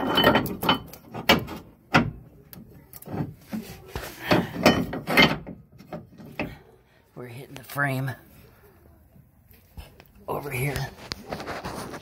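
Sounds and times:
metal part knocking against frame: 4.3 - 6.6.

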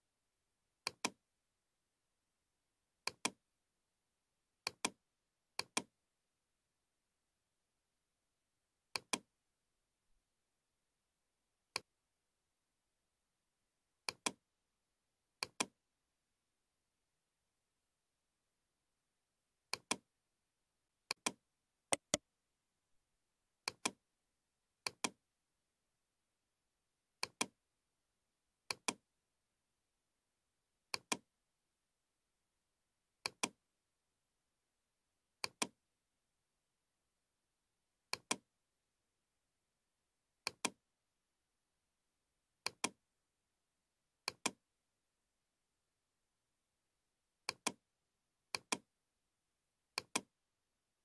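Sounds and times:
computer mouse clicks: 0.8 - 1.2, 3.0 - 3.4, 4.6 - 5.0, 5.6 - 5.9, 8.9 - 9.3, 14.0 - 14.4, 15.4 - 15.8, 19.7 - 20.0, 21.1 - 22.2, 23.6 - 24.0, 24.8 - 25.2, 27.2 - 27.6, 28.7 - 29.0, 30.9 - 31.3, 33.2 - 33.6, 35.4 - 35.8, 38.1 - 38.4, 40.4 - 40.8, 42.6 - 43.0, 44.2 - 44.6, 47.4 - 47.8, 48.5 - 48.9, 50.0 - 50.3.

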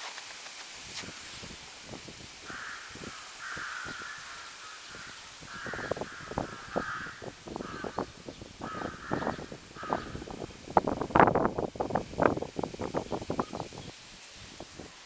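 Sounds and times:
crow cawing: 2.4 - 10.4.

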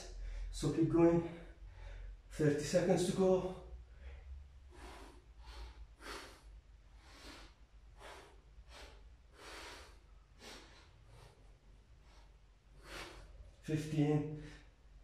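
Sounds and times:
man breathing hard: 1.2 - 2.3, 3.6 - 13.6.

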